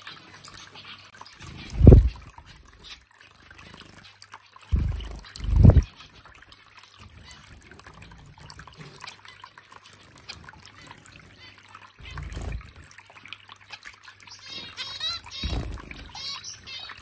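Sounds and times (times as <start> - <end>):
finch chirps: 0.0 - 3.0, 3.7 - 6.2, 14.0 - 17.0
fountain water trickling: 0.0 - 17.0.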